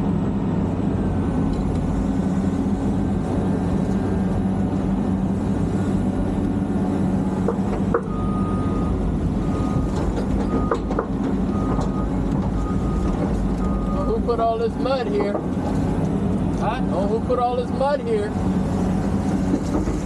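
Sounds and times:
reversing alarm beeping: 8.0s - 10.9s, 11.5s - 14.4s.

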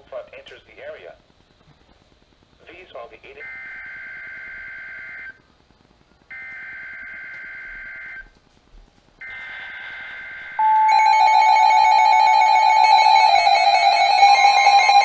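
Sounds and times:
radios beeping alarms: 3.4s - 5.4s, 9.2s - 15.0s
steady warning alarm tone: 3.4s - 5.4s, 6.3s - 8.4s, 9.2s - 15.0s.

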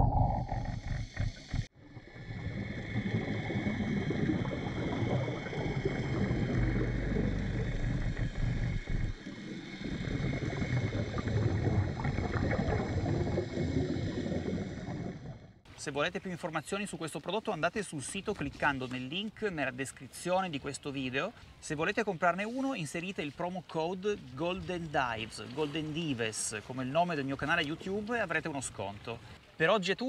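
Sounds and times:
underwater moving water and bubbling: 0.0s - 15.7s.

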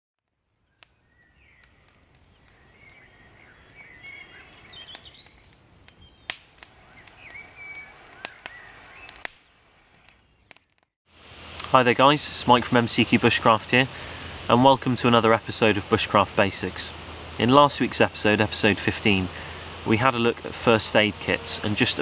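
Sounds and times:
campfire pops: 0.2s - 11.8s
birds chirping: 0.6s - 10.6s.

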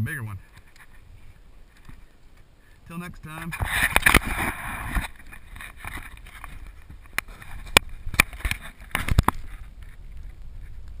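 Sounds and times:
water lapping against kayak: 3.5s - 11.0s.

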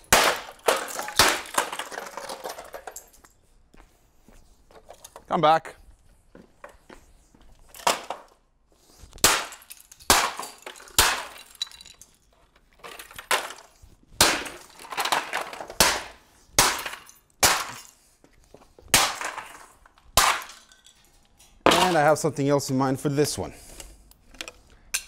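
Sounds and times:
hammer smashing plastic: 0.0s - 2.9s, 9.2s - 11.6s, 12.9s - 17.9s, 18.9s - 20.8s.

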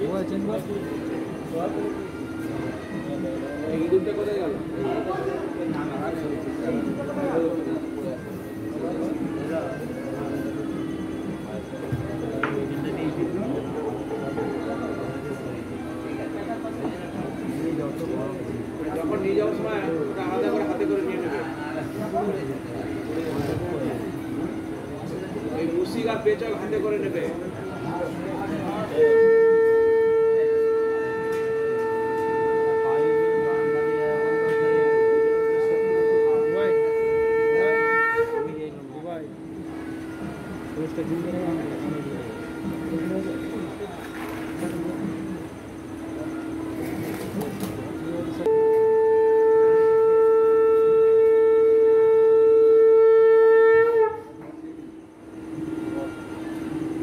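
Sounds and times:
conch shell blown: 27.6s - 57.0s.

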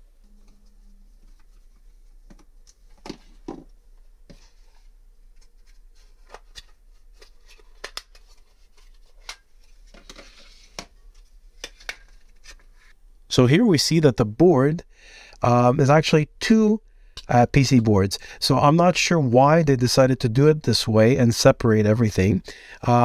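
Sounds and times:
rustling scrape: 4.3s - 11.4s.

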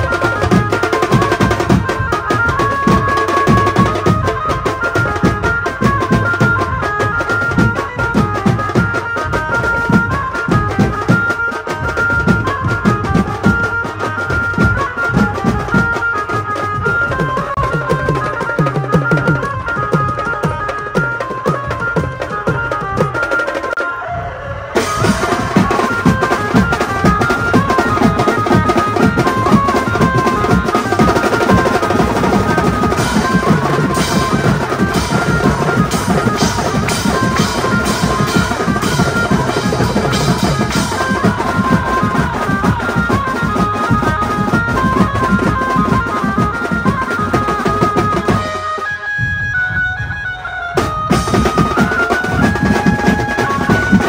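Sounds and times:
fast drumming: 0.0s - 23.9s, 24.8s - 54.0s
high repeating melody: 24.8s - 54.0s.

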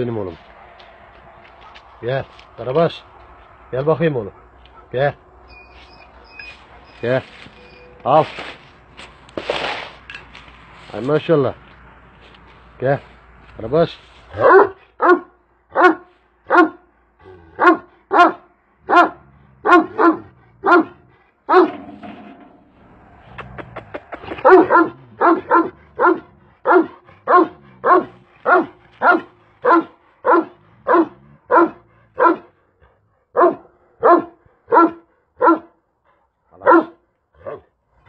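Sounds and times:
dog barking: 1.6s - 2.0s, 4.3s - 5.0s, 14.3s - 16.9s, 17.6s - 21.8s, 24.4s - 32.5s, 33.3s - 35.8s, 36.6s - 37.6s.

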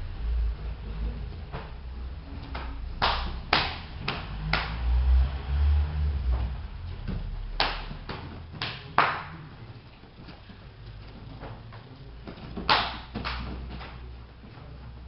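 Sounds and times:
slaps on mats: 2.5s - 4.8s, 6.3s - 9.6s, 11.4s - 14.0s.

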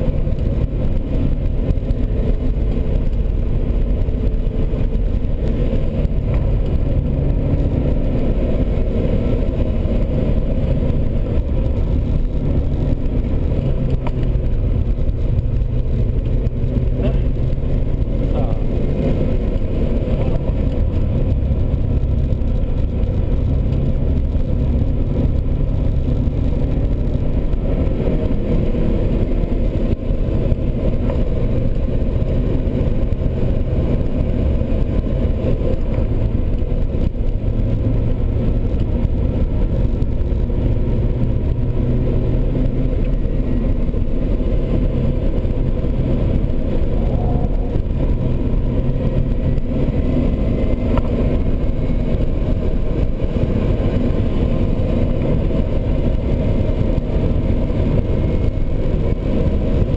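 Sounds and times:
car engine running hard: 0.0s - 59.9s
road and wind noise: 0.0s - 59.9s.

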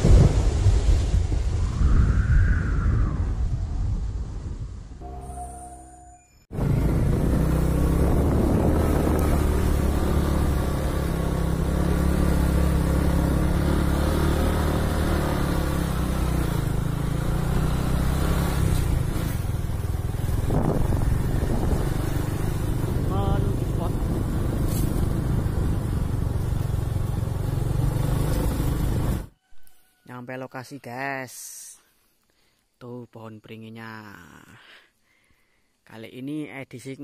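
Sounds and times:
motorcycle engine running: 6.5s - 29.3s.

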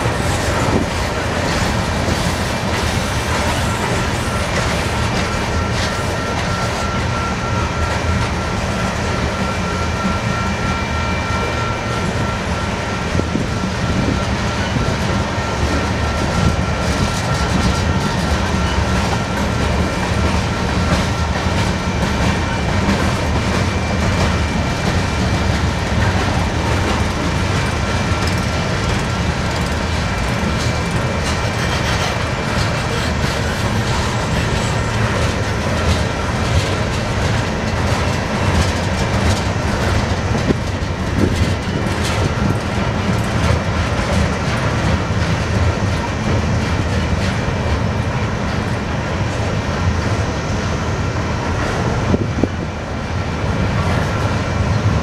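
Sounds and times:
freight train rolling past: 0.0s - 55.0s
wheels clacking over rail joints: 14.0s - 50.2s.

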